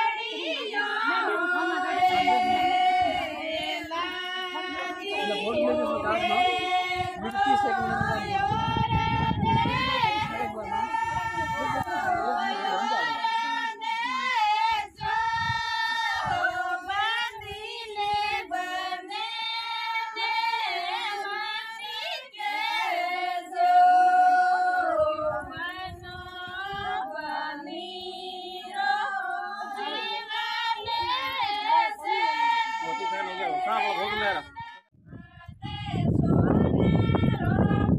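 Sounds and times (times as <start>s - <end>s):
high voices singing unaccompanied: 0.0s - 37.9s.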